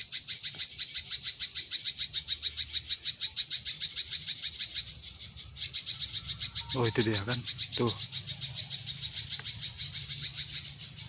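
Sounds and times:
rapid high chirps: 0.0 - 11.0
thin high whine: 6.4 - 7.4.

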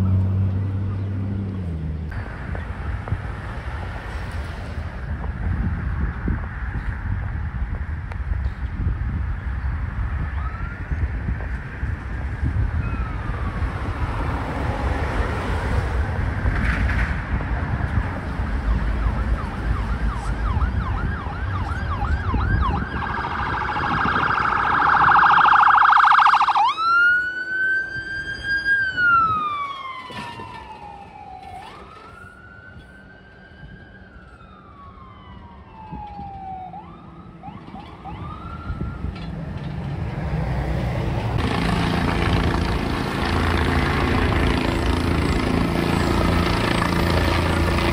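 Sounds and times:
traffic: 0.0 - 47.9
ambulance siren yelp and wail: 10.1 - 15.6, 18.6 - 39.4.

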